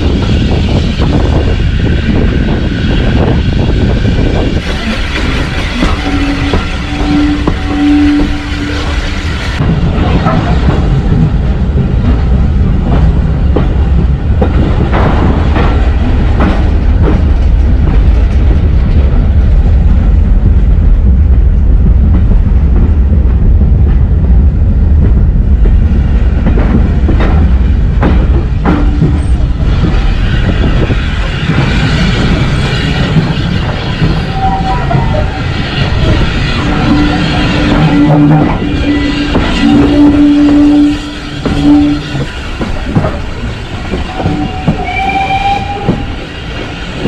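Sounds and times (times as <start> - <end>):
train wheels rumbling on rails: 0.0 - 47.0.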